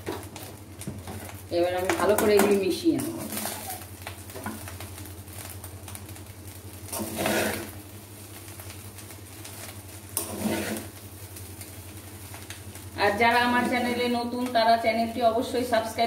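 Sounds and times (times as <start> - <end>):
spatula scraping a pan: 6.9 - 7.8, 10.2 - 11.0.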